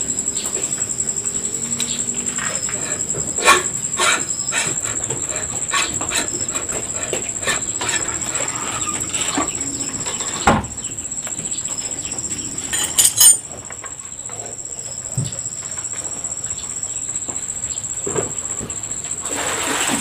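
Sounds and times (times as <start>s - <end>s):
clicks and scrapes on metal: 12.8s - 13.4s.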